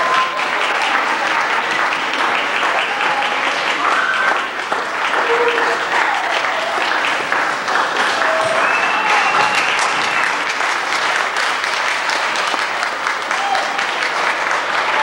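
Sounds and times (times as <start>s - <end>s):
audience clapping: 0.0s - 15.0s
people whistling: 8.2s - 10.4s.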